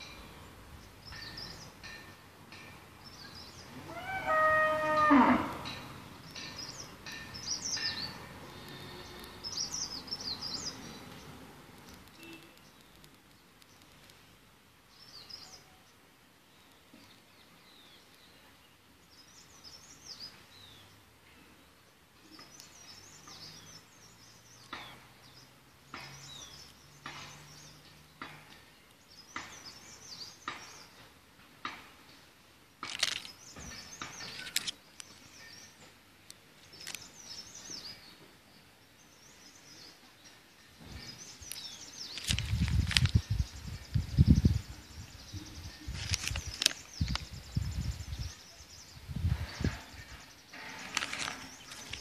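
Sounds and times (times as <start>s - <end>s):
small birds chirping: 5.0s - 52.0s
sharp clicks: 11.1s - 14.2s.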